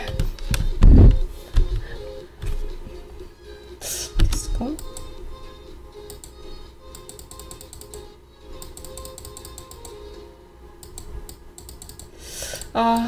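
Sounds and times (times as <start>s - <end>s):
quiet background music: 0.0s - 13.0s
keyboard keys clicking: 6.1s - 8.0s, 8.6s - 10.0s, 10.8s - 13.0s.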